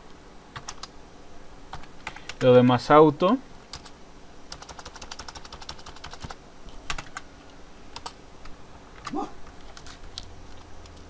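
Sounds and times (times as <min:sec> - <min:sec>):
computer keyboard typing: 0:00.6 - 0:00.9, 0:01.7 - 0:02.5, 0:03.7 - 0:07.2, 0:07.9 - 0:08.2, 0:09.0 - 0:11.0.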